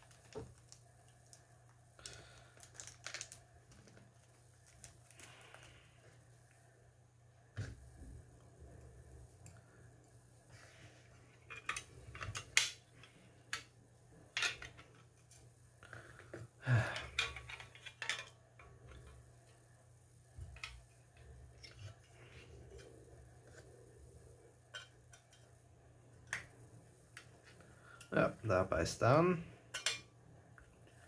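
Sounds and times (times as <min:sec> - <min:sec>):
plastic parts clicking and knocking: 0:16.2 - 0:19.2.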